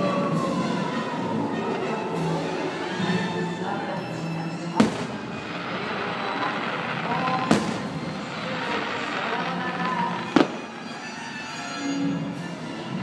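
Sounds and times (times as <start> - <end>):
fireworks show music: 0.0 - 13.0
firework shells bursting: 4.8 - 11.0.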